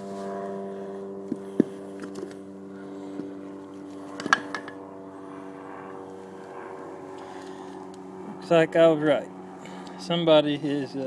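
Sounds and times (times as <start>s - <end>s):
engine hum: 0.0s - 11.0s.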